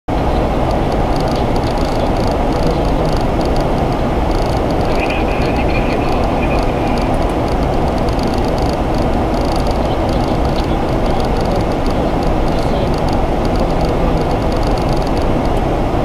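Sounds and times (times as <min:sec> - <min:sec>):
airflow and engine noise in cockpit: 0:00.1 - 0:16.0.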